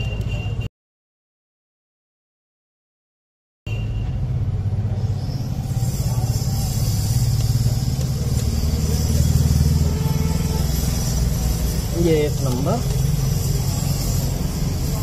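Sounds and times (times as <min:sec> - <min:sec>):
vehicle engine running: 0:03.8 - 0:15.0.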